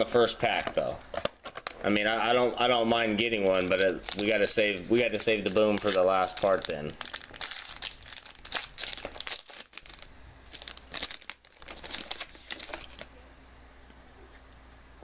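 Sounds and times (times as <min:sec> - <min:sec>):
foil wrapper tearing and crinkling: 0:00.8 - 0:01.9, 0:03.3 - 0:13.1.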